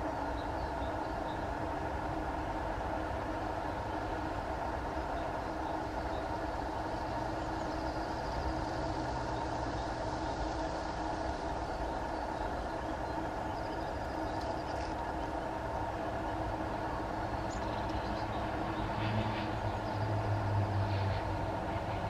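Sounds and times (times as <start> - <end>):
constant hum: 0.0 - 22.0
low mechanical rumble: 0.0 - 22.0.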